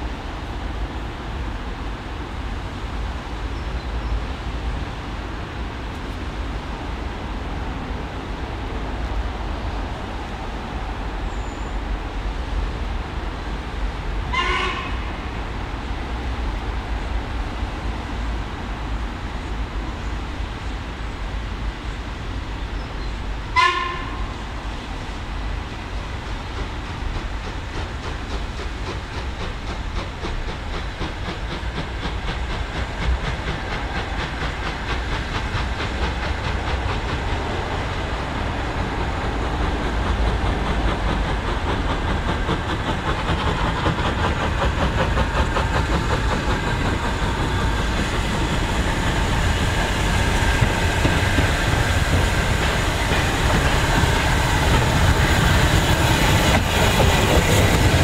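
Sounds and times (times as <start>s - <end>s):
steam locomotive whistle: 14.3s - 15.2s, 23.5s - 24.4s
steam exhaust and running gear: 23.5s - 58.0s.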